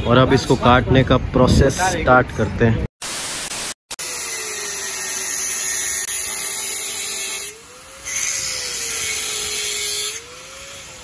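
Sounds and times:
angle grinder cutting steel pipe: 0:03.9 - 0:11.0.

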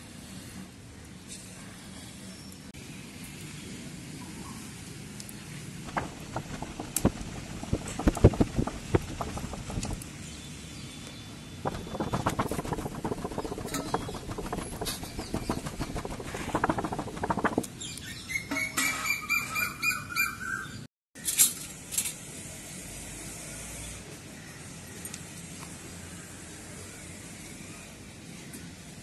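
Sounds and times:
charcoal crackling: 0:05.8 - 0:10.0, 0:11.7 - 0:17.7.

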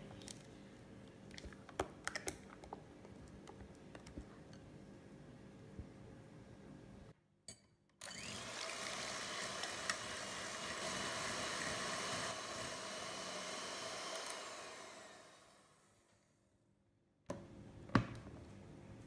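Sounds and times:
electric hand mixer whirring: 0:08.0 - 0:16.0.

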